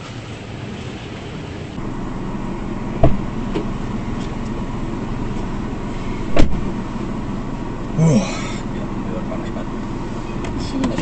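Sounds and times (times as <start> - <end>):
car engine humming: 0.0 - 11.0
sharp thumps: 3.0 - 4.3, 6.3 - 6.8.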